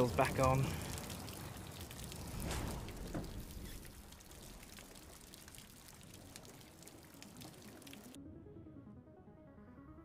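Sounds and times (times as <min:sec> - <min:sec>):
rain falling: 0:00.0 - 0:08.2
water drips: 0:00.0 - 0:08.2.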